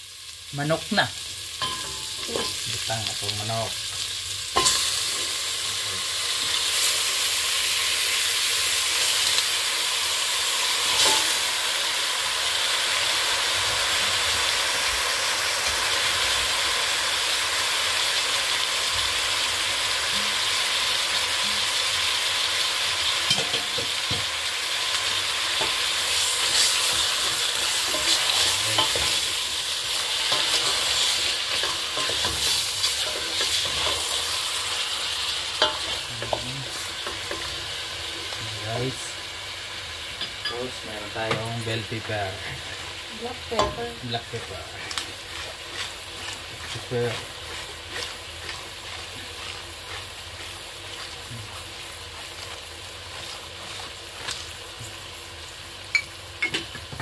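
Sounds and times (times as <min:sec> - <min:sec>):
chicken sizzling in hot oil: 0:00.0 - 0:57.0
wooden spoon scraping a pot: 0:44.4 - 0:54.9.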